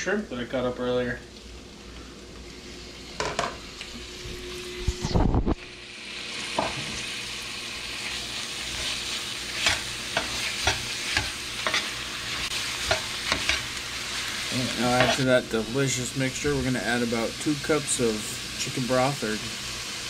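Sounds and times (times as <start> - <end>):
shrimp frying sizzle: 0.0 - 20.0
metal utensil scraping pan: 8.7 - 13.7, 14.7 - 15.3.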